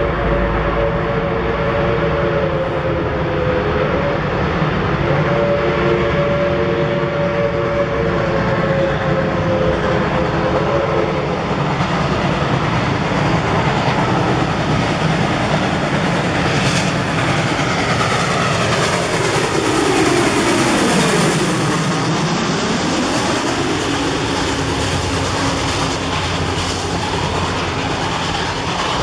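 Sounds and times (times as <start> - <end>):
approaching locomotive: 0.0 - 29.0
steam locomotive whistle: 0.0 - 29.0
steady rumbling: 7.5 - 29.0.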